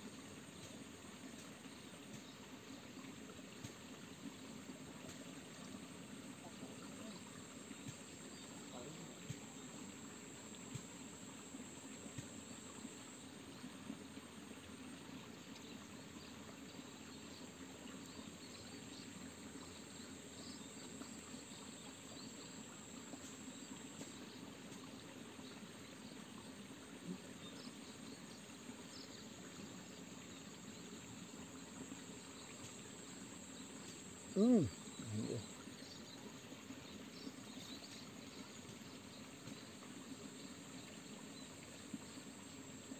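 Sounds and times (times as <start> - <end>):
low background hiss: 0.0 - 42.9
insects trilling: 17.1 - 42.9.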